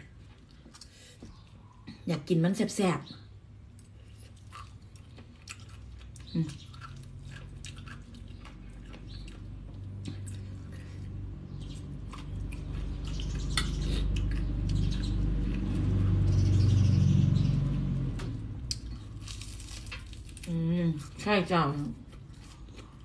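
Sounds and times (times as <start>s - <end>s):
chewing food: 3.7s - 16.4s, 21.8s - 23.0s.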